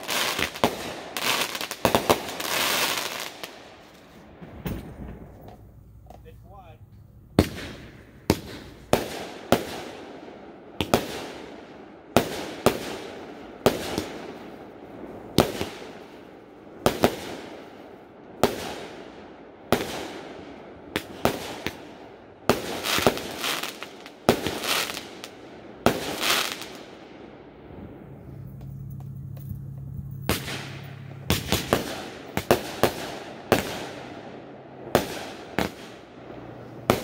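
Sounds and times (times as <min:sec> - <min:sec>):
rapid firework pops: 0:00.0 - 0:06.3, 0:07.4 - 0:10.0, 0:10.8 - 0:11.5, 0:15.3 - 0:16.0, 0:28.5 - 0:34.0
fireworks bangs with echo: 0:00.0 - 0:06.7, 0:07.3 - 0:37.0.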